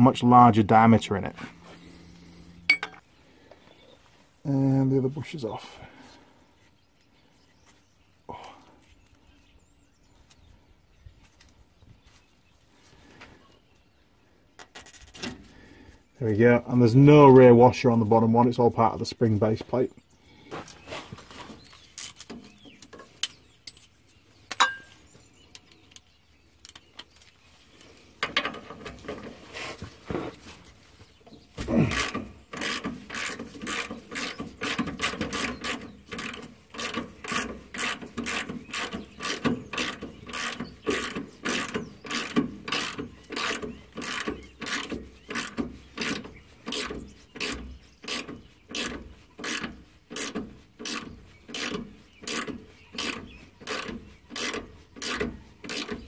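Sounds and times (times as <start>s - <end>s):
hand ratchet clicking: 31.9s - 56.0s.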